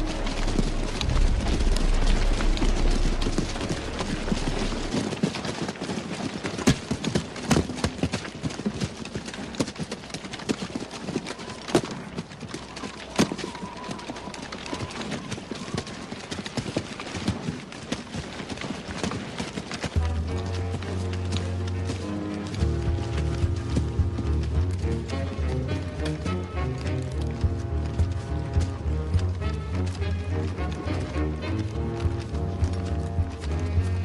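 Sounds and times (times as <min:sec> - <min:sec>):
low rumble: 0:00.0 - 0:05.2
battle clatter and crackle: 0:00.0 - 0:34.0.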